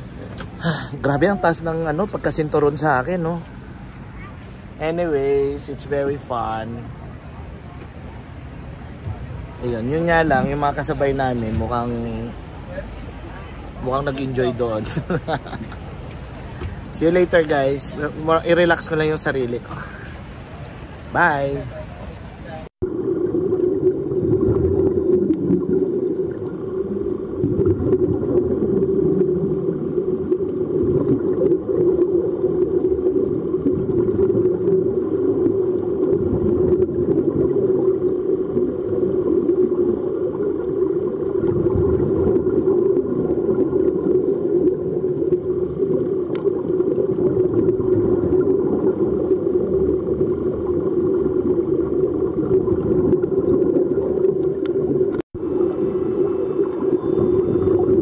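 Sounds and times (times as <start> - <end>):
underwater rush of water: 0.0 - 58.0
bubbling underwater: 22.8 - 58.0.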